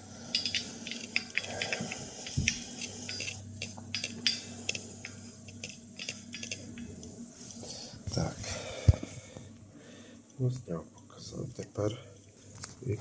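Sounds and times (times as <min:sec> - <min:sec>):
faint low hum: 0:00.0 - 0:13.0
glass and metal tubes clicking: 0:00.3 - 0:07.1.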